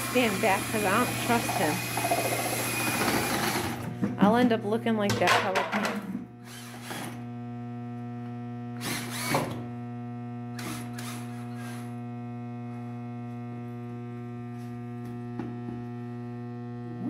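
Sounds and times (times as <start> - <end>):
drill mixing paint: 0.0 - 3.9, 6.4 - 7.3, 8.8 - 9.7, 10.5 - 12.1.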